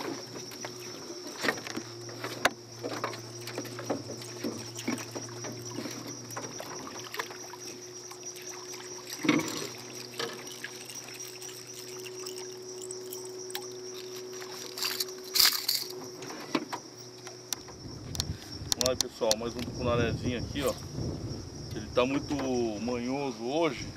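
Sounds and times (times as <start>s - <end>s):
fish thrashing and splashing: 2.9s - 16.0s.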